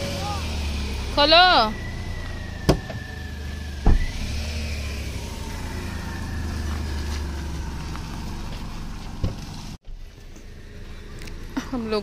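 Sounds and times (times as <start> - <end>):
car engine running: 0.0 - 12.0
car door shutting: 2.6 - 3.0, 3.8 - 4.3.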